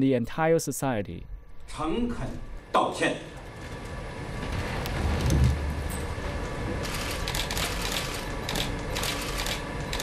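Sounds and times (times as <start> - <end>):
camera shutters clicking: 6.8 - 10.0.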